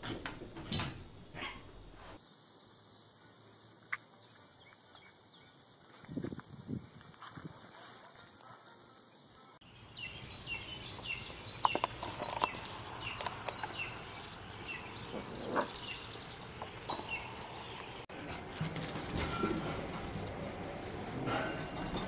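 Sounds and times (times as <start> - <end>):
bird chirping: 7.7 - 18.0.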